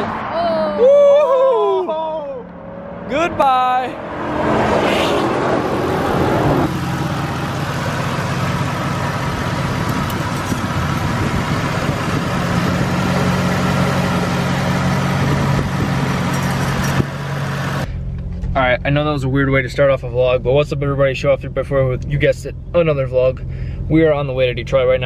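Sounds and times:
car driving past: 0:00.0 - 0:09.5
car engine idling: 0:05.4 - 0:25.0.

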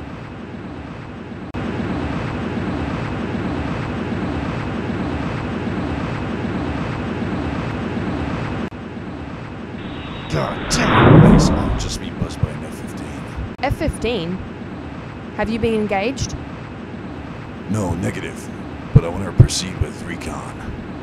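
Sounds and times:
jet engine drone: 0:09.8 - 0:13.4.

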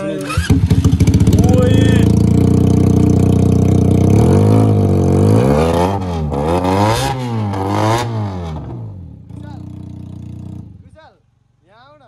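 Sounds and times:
motorcycle engine revving: 0:00.0 - 0:10.9.

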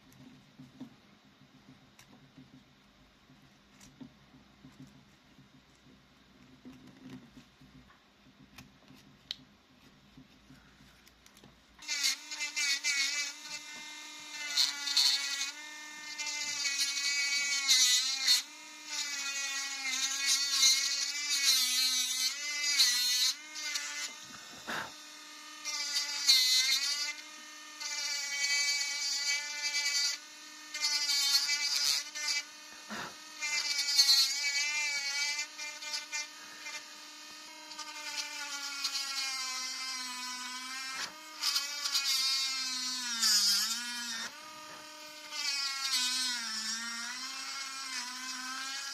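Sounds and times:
rotary engraving pen whining: 0:10.2 - 0:48.9
scratchy hiss of wood cutting: 0:20.0 - 0:27.2, 0:30.8 - 0:36.8.

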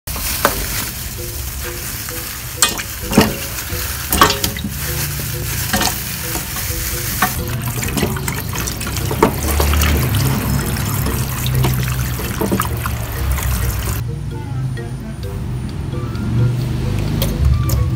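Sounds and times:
plastic bag crinkling: 0:00.1 - 0:14.0
tap water running: 0:00.1 - 0:14.0
chicken feet knocking in metal pot: 0:02.6 - 0:14.0.

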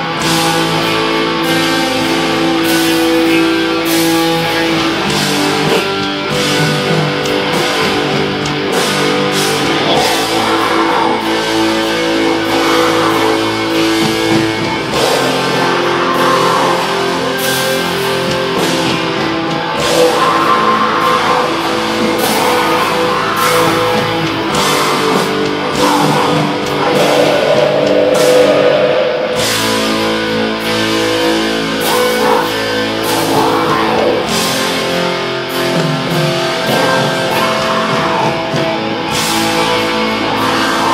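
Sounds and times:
distorted electric guitars: 0:00.0 - 0:40.9
drum kit: 0:00.0 - 0:40.9
crashing cymbals: 0:08.7 - 0:33.7.

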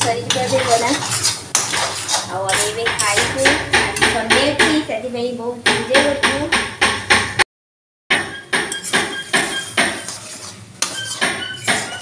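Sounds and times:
spatula scraping a wok: 0:00.0 - 0:03.6, 0:08.7 - 0:12.0
metallic pan rings: 0:08.2 - 0:12.0.

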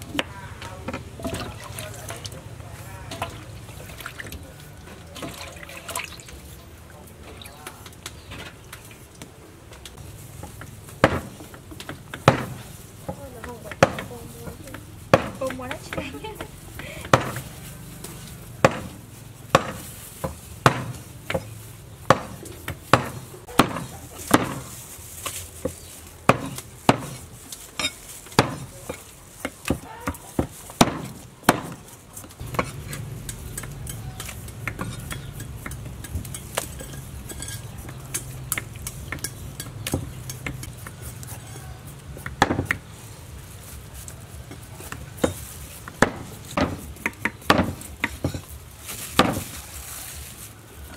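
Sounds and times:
knife chopping on a board: 0:11.0 - 0:14.1, 0:14.7 - 0:16.0, 0:17.0 - 0:17.5, 0:18.6 - 0:21.5, 0:22.1 - 0:24.8, 0:25.7 - 0:27.2, 0:28.3 - 0:36.7, 0:42.1 - 0:42.9, 0:44.5 - 0:48.4, 0:49.2 - 0:49.5.

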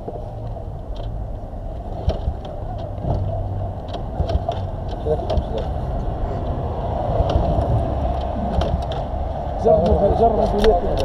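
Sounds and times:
engine humming: 0:00.0 - 0:11.0
clicks and knocks: 0:01.9 - 0:05.8, 0:07.2 - 0:09.2.

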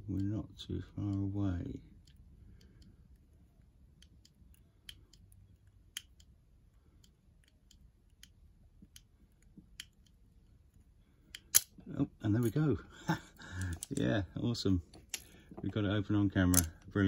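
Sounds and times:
lock pick clicks: 0:16.5 - 0:16.9.

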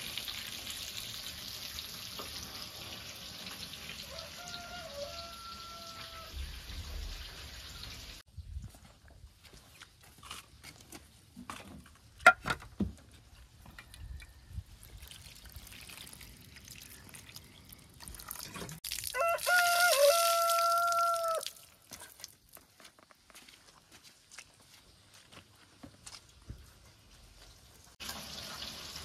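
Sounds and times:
rooster crowing: 0:04.0 - 0:06.5, 0:19.1 - 0:21.6
water splashing over herbs: 0:14.8 - 0:22.6.

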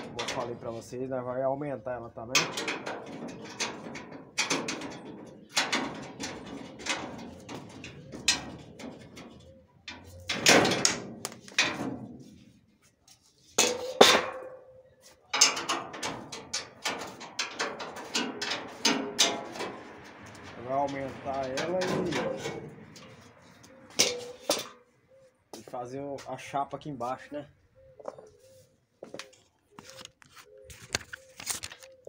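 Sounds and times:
metal grille slats clanking: 0:00.0 - 0:00.8, 0:02.3 - 0:12.4, 0:13.6 - 0:14.6, 0:15.3 - 0:24.8.

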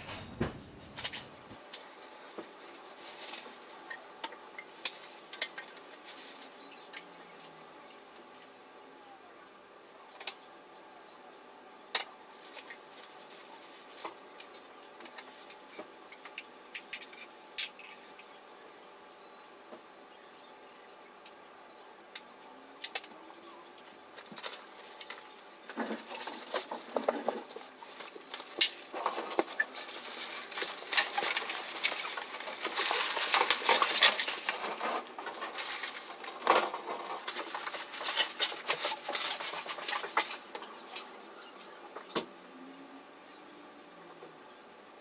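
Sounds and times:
cloth rustling on wire rack: 0:24.0 - 0:41.2.

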